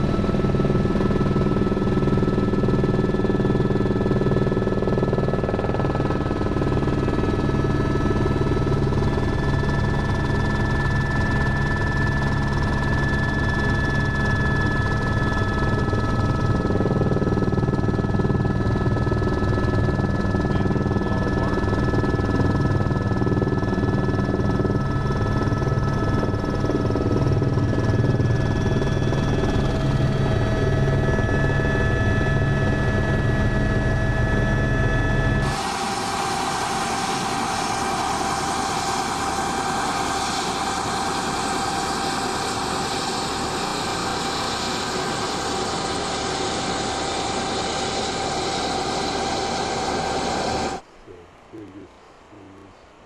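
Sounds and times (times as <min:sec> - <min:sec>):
helicopter turbine whine: 0:00.0 - 0:53.0
rotor blades beating: 0:35.4 - 0:50.8.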